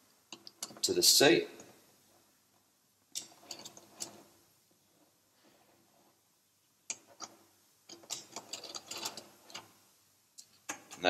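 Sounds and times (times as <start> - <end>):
allen key clicking in screws: 7.9 - 9.7.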